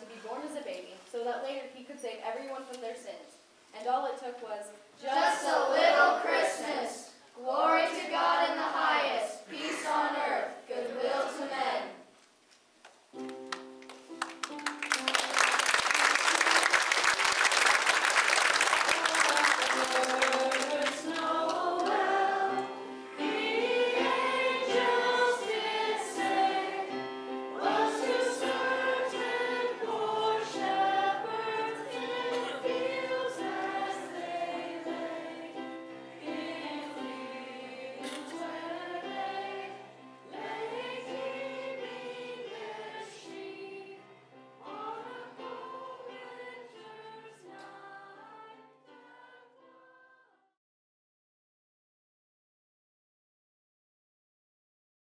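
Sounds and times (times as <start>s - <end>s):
children singing: 5.0s - 11.9s, 18.9s - 50.0s
instrumental accompaniment: 13.1s - 15.8s
audience applause: 13.8s - 22.0s.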